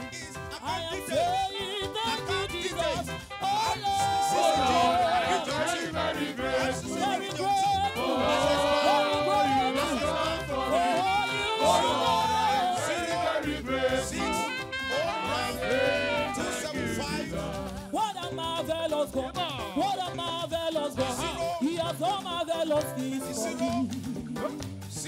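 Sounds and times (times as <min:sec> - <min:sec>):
band accompaniment: 0:00.0 - 0:25.0
gospel choir singing: 0:02.2 - 0:18.1, 0:20.8 - 0:21.7, 0:23.1 - 0:24.7.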